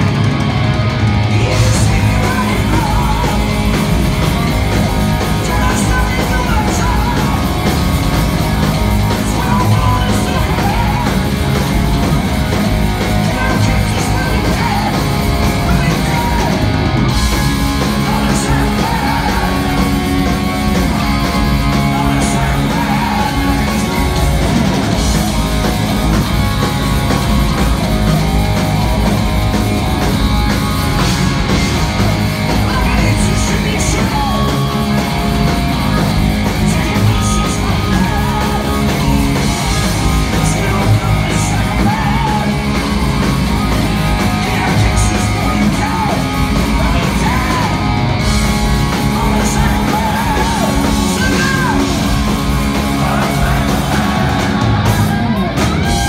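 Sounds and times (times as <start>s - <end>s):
heavy metal band playing: 0.0s - 56.0s
man singing: 1.3s - 3.8s, 5.2s - 7.8s, 9.1s - 11.4s, 13.2s - 16.7s, 17.8s - 20.1s, 20.9s - 24.4s, 32.5s - 35.2s, 36.6s - 43.0s, 44.1s - 48.0s, 48.8s - 54.8s.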